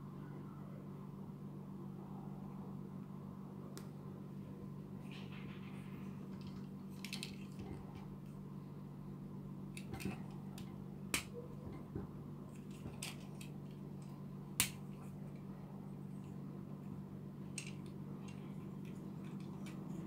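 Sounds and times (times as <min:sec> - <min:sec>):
steady low hum: 0:00.0 - 0:20.0
plastic toy parts clicking: 0:17.5 - 0:20.0.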